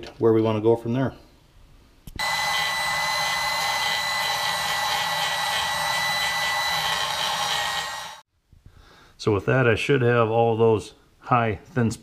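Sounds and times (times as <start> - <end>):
grinder high whine: 2.2 - 8.2.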